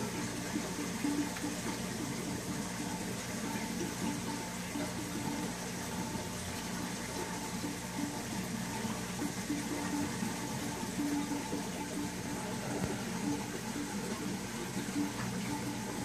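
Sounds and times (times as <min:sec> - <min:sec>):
low pump hum: 0:00.0 - 0:16.0
water rushing in filter: 0:00.0 - 0:16.0.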